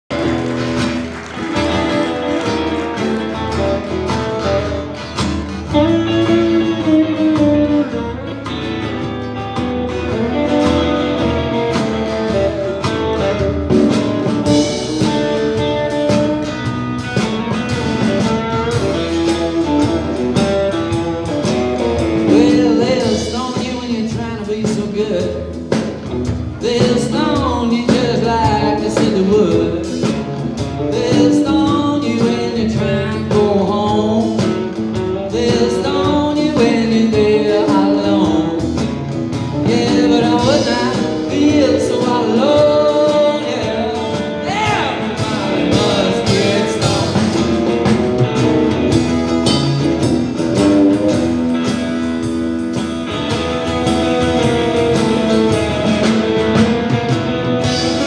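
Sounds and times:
live blues-rock band: 0.1s - 58.0s
male lead vocal: 22.2s - 25.8s, 26.5s - 48.0s.

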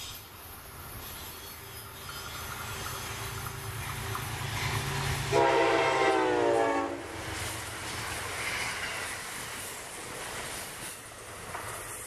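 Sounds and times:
train rumbling past: 0.0s - 12.0s
train horn: 5.2s - 7.2s.

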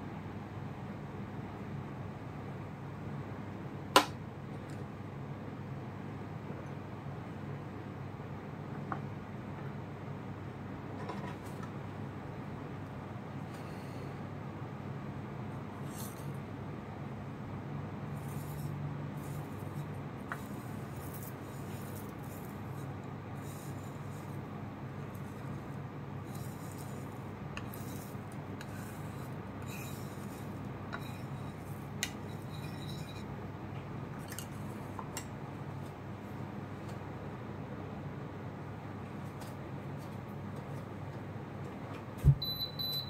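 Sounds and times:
steady low hum: 0.0s - 43.0s
dry tea leaves scraping on scoop: 18.2s - 24.4s, 26.2s - 33.3s.

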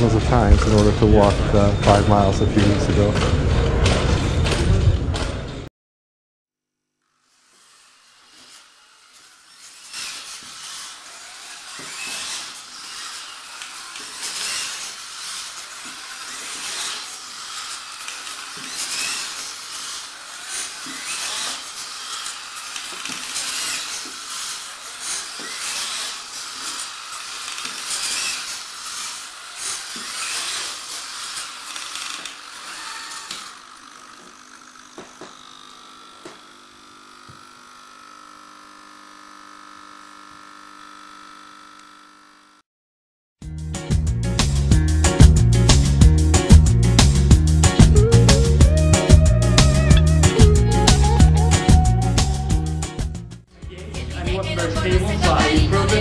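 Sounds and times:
robot motors whirring: 7.1s - 42.0s.

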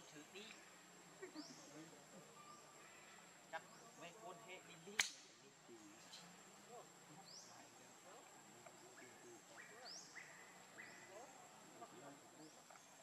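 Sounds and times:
sharp click: 5.0s - 5.3s.

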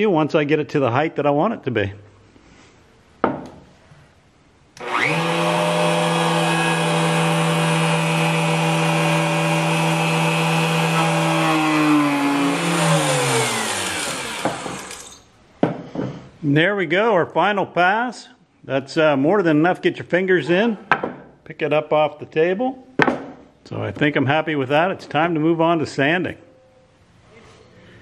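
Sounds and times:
router whining: 4.8s - 15.2s.

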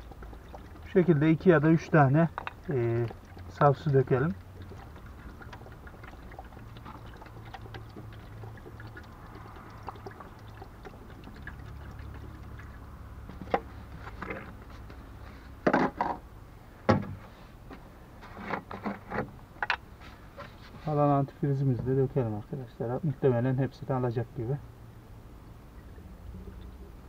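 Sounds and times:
water pouring from a bottle: 0.0s - 15.3s.

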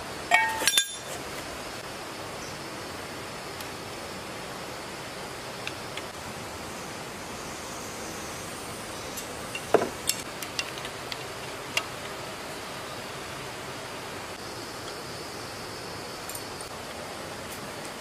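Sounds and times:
steady hiss: 0.0s - 18.0s
wrench clinking on bolts: 0.3s - 1.2s.

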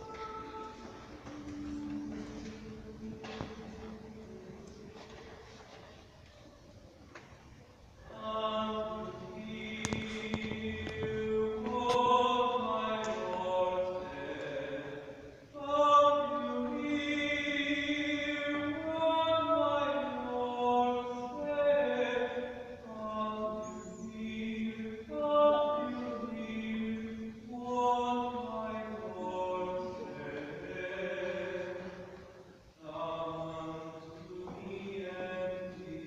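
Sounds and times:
mixed choir singing a cappella: 0.0s - 5.9s, 8.0s - 36.0s.

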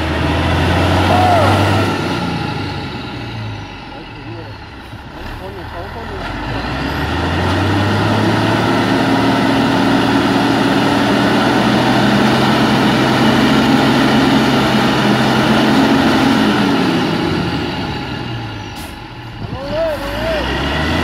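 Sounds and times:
diesel truck engine droning: 0.0s - 21.0s.

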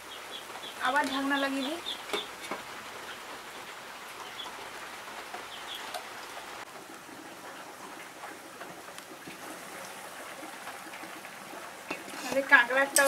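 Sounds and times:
pot boiling under lid: 6.6s - 13.0s.

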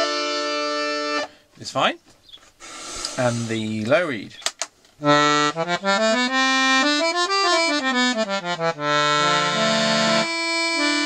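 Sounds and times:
accordion notes and chords: 0.0s - 1.4s, 4.6s - 11.0s.

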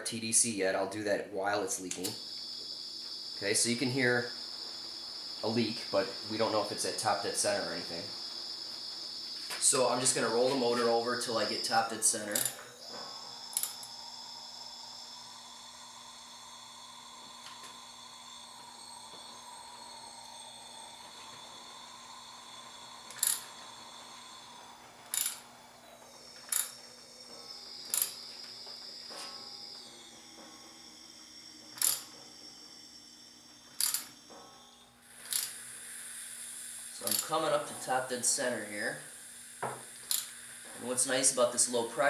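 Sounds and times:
air hissing and whistling: 0.0s - 42.0s
wrench clicks: 12.3s - 12.6s, 13.5s - 13.9s, 23.1s - 23.5s, 25.1s - 25.4s, 26.5s - 26.8s, 27.9s - 28.2s, 31.8s - 32.1s, 33.8s - 34.1s, 35.2s - 35.6s, 37.1s - 37.4s, 40.0s - 40.3s.

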